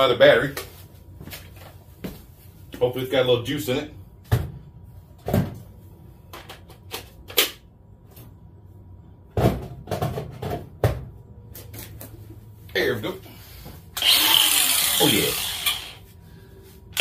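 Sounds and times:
hard objects knocking and clunking: 0:09.3 - 0:11.2.

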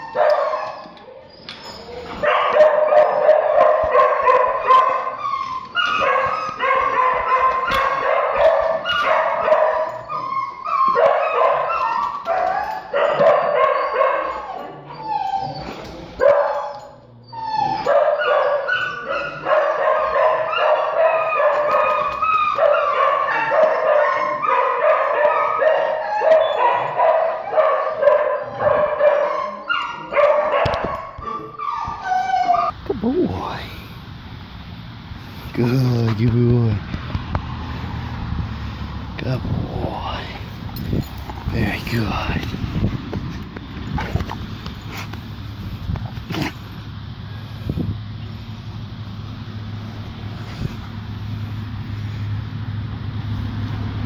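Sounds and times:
dogs barking and yelping: 0:00.0 - 0:32.8.

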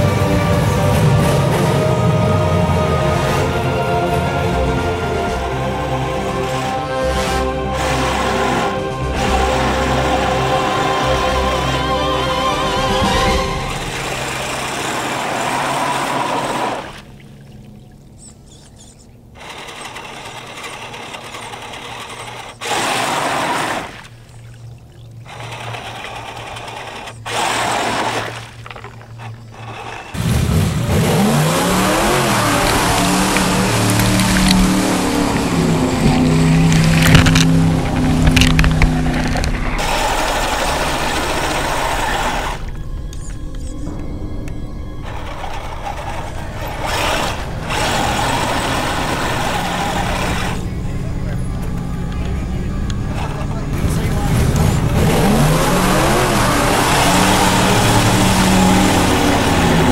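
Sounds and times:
electric motors whining: 0:00.0 - 0:59.9
truck engine revving: 0:00.0 - 0:59.9
splashing of mud and water: 0:22.6 - 0:42.8.

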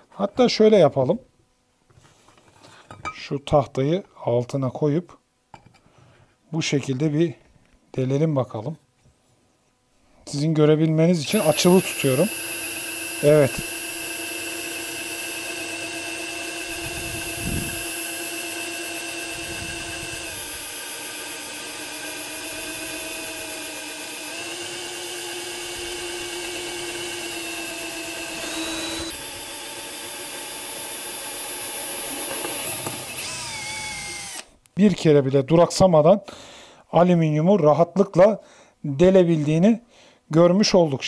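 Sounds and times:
cordless drill drilling metal: 0:11.3 - 0:34.5.

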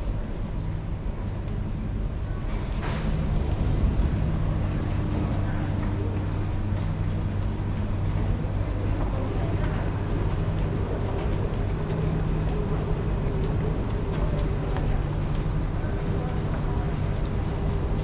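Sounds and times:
distant voices: 0:00.0 - 0:18.0
low machinery hum: 0:00.0 - 0:18.0
faint footsteps: 0:02.6 - 0:18.0.

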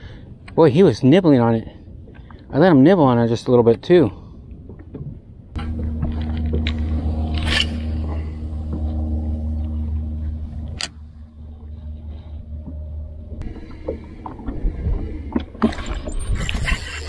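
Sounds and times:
boat motor humming: 0:05.6 - 0:17.0.

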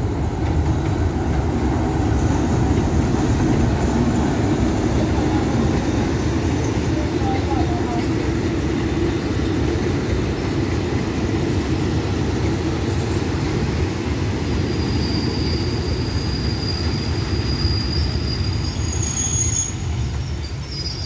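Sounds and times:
train wheels rumbling on track: 0:00.0 - 0:21.0
high wheel squeal: 0:14.6 - 0:21.0.

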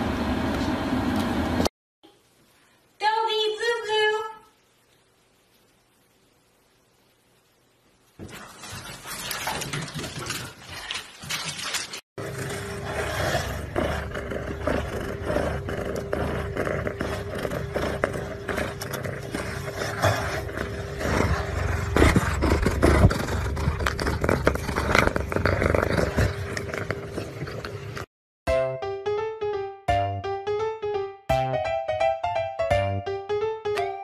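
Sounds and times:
faint steady hum: 0:02.0 - 0:08.2
cat rubbing against phone: 0:12.4 - 0:28.1.

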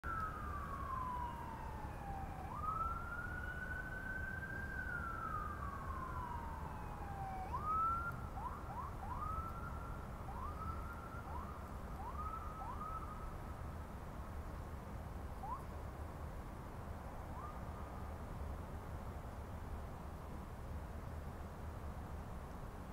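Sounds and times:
siren wailing and whooping: 0:00.0 - 0:13.2.

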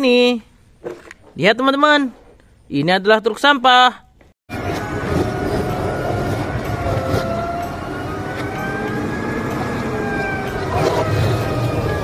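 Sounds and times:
diesel engine rumbling: 0:04.5 - 0:12.0
hydraulic whine: 0:04.5 - 0:12.0.

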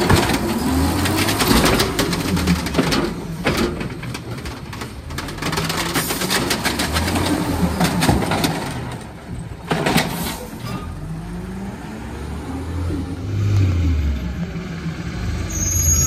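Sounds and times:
loader arm rattling and knocking: 0:00.0 - 0:10.9
trash cart clatter: 0:00.0 - 0:11.3
truck engine revving: 0:10.9 - 0:15.5.

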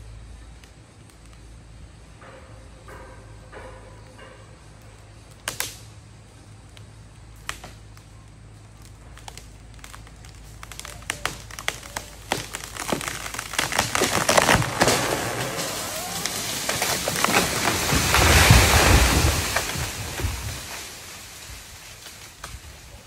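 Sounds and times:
wood cracking and snapping: 0:05.4 - 0:05.8, 0:07.4 - 0:23.0.

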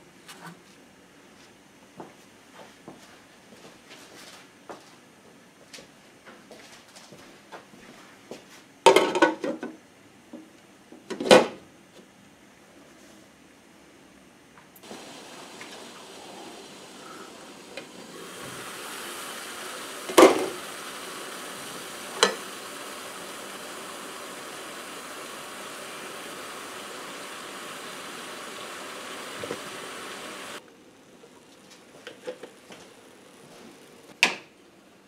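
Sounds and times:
hiss of steaming pan: 0:14.8 - 0:30.6.

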